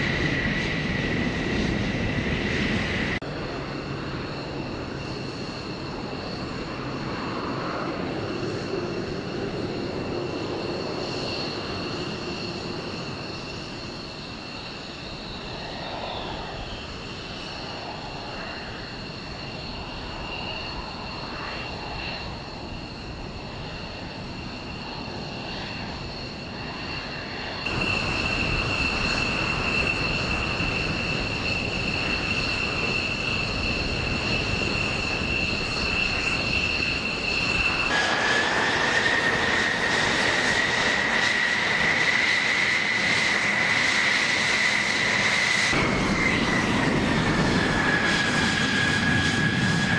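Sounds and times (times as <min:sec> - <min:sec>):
jet engine whining while taxiing: 0:00.0 - 0:49.9
jet engines idling: 0:00.0 - 0:49.9
jet engines whining and roaring: 0:00.0 - 0:49.9.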